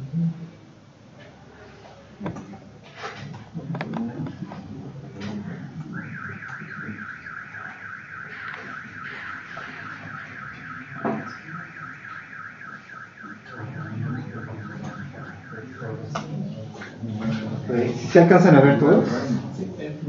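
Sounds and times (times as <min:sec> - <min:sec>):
high warbling electronic tone: 0:04.8 - 0:16.4.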